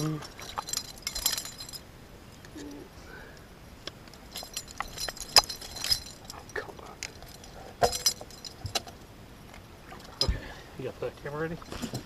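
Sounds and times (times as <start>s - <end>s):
metal tool clinking on lure: 0.0s - 1.8s, 4.2s - 9.0s.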